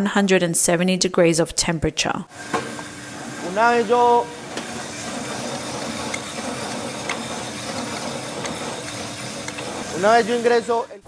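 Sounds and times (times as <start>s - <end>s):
coffee roaster rushing noise: 2.3s - 11.0s.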